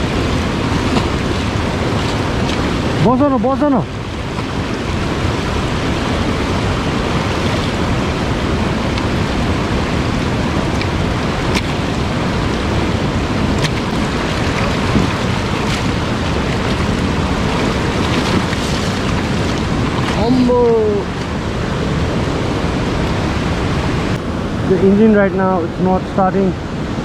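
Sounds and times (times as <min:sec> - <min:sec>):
river water rushing and splashing: 0:00.0 - 0:27.0.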